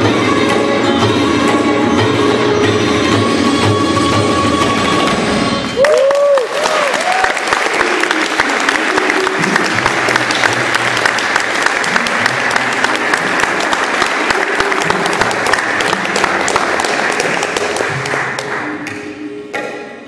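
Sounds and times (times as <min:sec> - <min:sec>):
audience applauding: 0:05.8 - 0:18.9.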